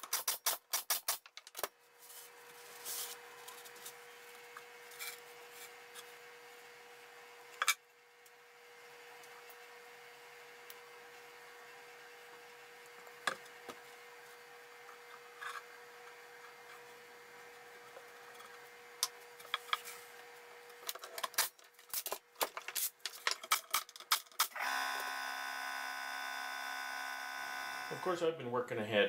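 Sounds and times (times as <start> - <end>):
small motor running: 24.6 - 28.2.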